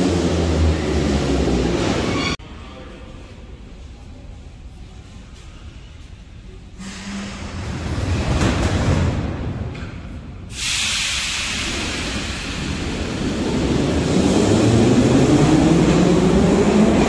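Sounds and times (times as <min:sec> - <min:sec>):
low train rumble: 0:00.0 - 0:17.0
loud hiss: 0:10.5 - 0:13.6.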